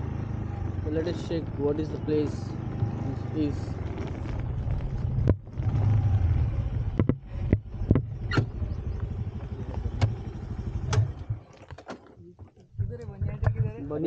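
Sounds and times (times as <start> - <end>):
scooter engine rumbling: 0.0 - 14.0.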